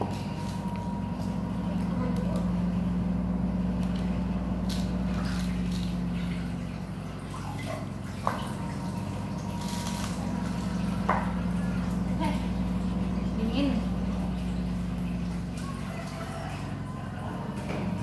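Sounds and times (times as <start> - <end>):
low hum: 0.0 - 15.8
small splashes: 4.6 - 18.0.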